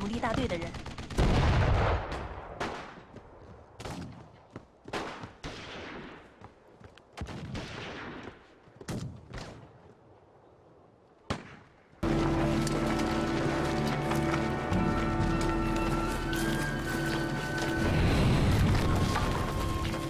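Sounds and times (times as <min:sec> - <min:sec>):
music: 0:12.0 - 0:20.0.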